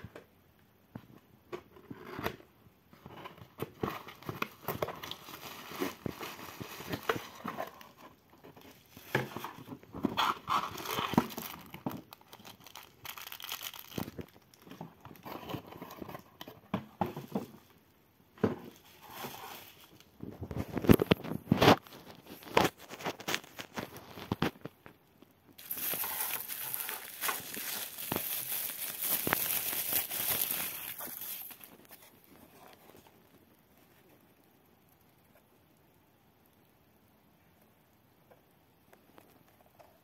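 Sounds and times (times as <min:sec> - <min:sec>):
plastic packaging crinkling: 0:03.6 - 0:17.8, 0:18.6 - 0:25.0, 0:25.6 - 0:33.4.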